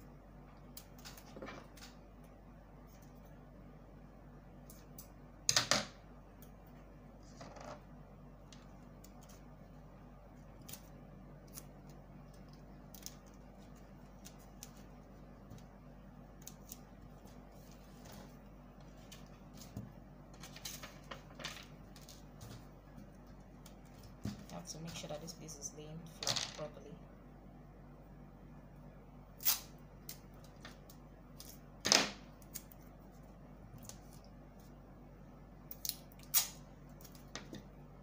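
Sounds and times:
steady low hum: 0.0s - 38.0s
paper rustling: 16.5s - 24.6s.

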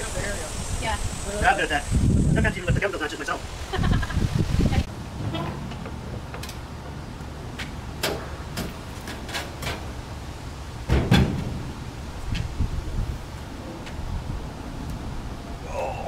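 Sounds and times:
wooden boards knocking and clattering: 10.9s - 11.6s.

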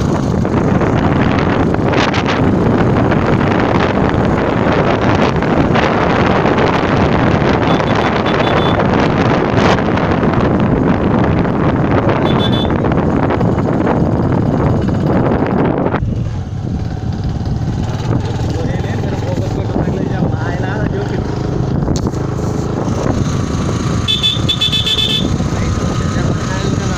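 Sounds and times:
motorcycle engine running: 0.0s - 26.9s
wind buffeting microphone: 0.0s - 26.9s.

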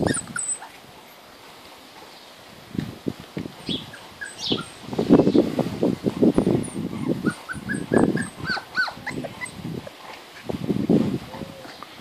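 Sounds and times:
puppies yipping and whimpering: 0.0s - 0.8s, 3.7s - 4.8s, 6.4s - 9.6s.

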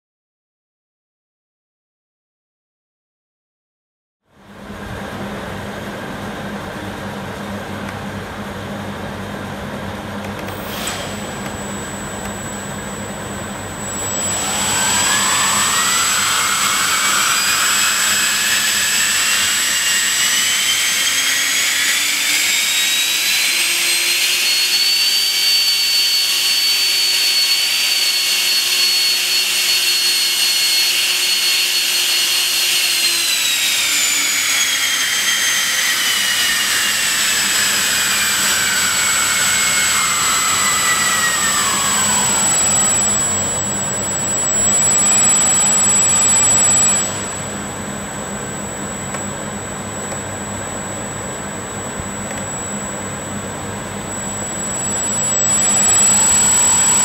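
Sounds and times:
faint hum: 4.3s - 21.1s, 38.1s - 57.0s
electric ducted fan whine: 4.3s - 30.8s, 33.2s - 57.0s
click: 10.2s - 10.6s, 11.4s - 11.6s, 52.3s - 52.5s.

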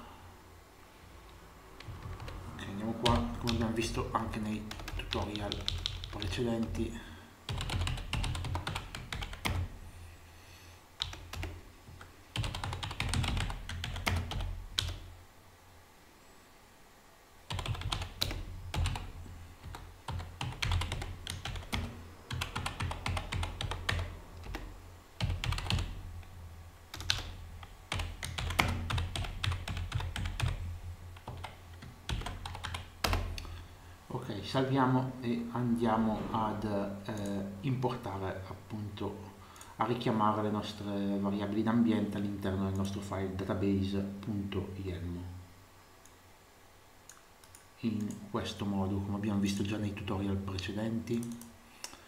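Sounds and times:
low steady hum: 0.0s - 52.0s
typing on computer keyboard: 1.8s - 2.4s, 4.7s - 6.4s, 7.5s - 9.7s, 11.0s - 11.6s, 12.4s - 15.0s, 17.5s - 25.9s, 26.9s - 30.6s, 31.2s - 33.3s.

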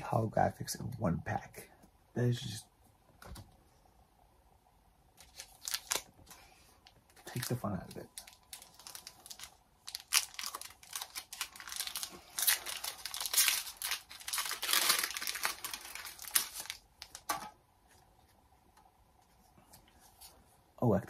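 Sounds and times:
foil wrapper tearing and crinkling: 5.2s - 6.1s, 8.2s - 17.3s.

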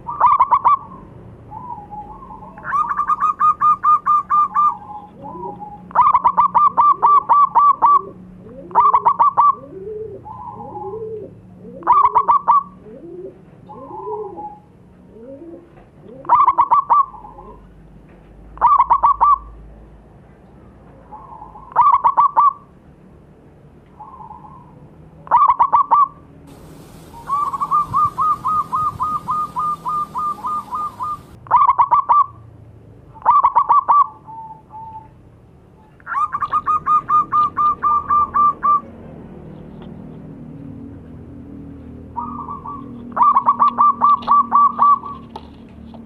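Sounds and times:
doves cooing: 0.0s - 17.7s, 24.0s - 32.2s, 36.1s - 38.9s, 42.2s - 45.4s.

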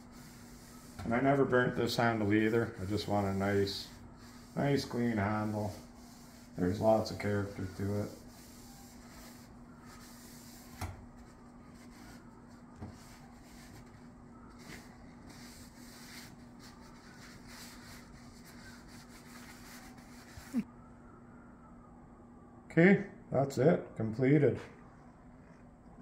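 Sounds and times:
cloth rag wiping wood: 0.0s - 20.6s.

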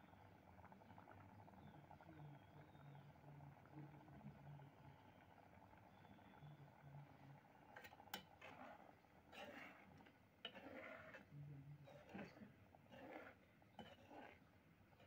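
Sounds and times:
thick curry sloshing: 8.3s - 14.4s.

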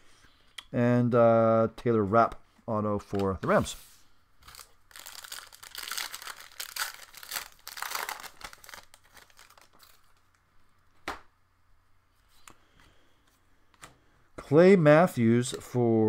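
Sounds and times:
plastic wrapper crinkling and tearing: 4.4s - 10.4s.

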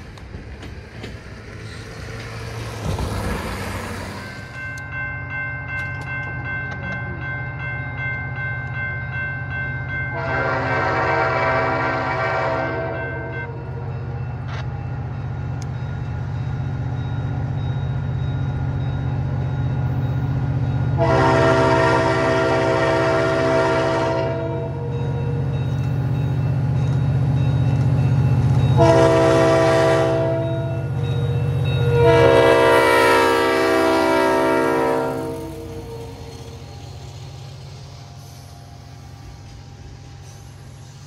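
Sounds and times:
locomotive engine rumbling: 0.0s - 41.0s
locomotive air horn blasts: 10.1s - 13.5s, 21.0s - 24.9s, 28.8s - 30.8s, 31.8s - 36.2s.

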